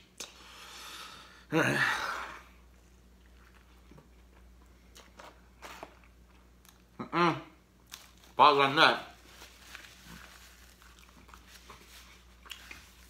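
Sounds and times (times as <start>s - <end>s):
quiet chewing: 2.8s - 6.9s, 9.7s - 13.0s.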